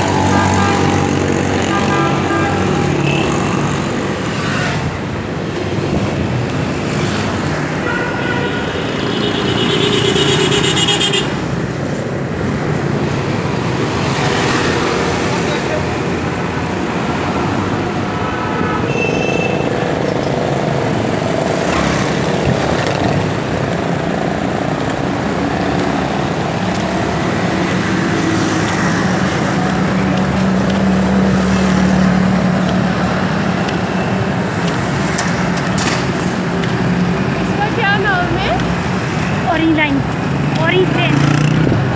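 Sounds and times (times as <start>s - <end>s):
street traffic: 0.0s - 41.9s
car horn toot: 7.8s - 11.4s, 18.9s - 19.7s.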